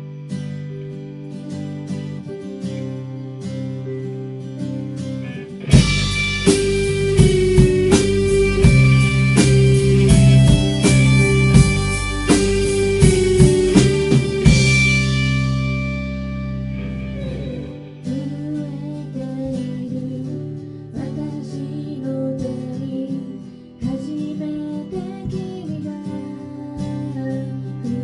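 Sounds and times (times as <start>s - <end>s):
live band playing: 5.3s - 18.1s
drum hits: 5.7s - 16.0s
person singing: 17.1s - 28.0s.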